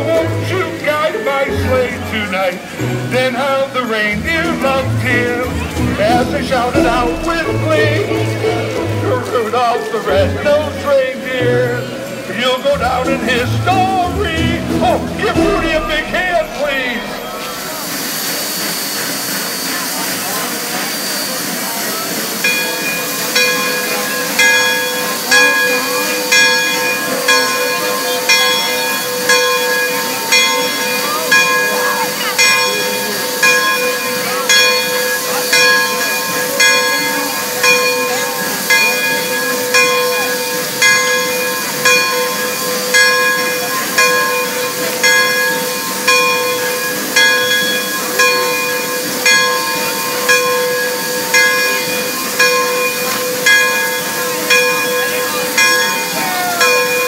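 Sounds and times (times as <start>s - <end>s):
bell ringing: 0.0s - 19.7s, 22.2s - 57.0s
steam hissing: 16.5s - 57.0s.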